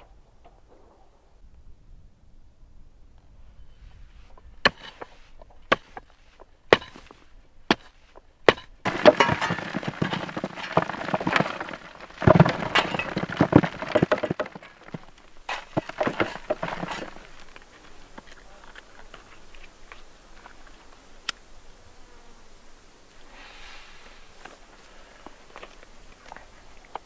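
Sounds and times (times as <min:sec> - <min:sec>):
earth clods tumbling into grave: 0:08.5 - 0:19.6.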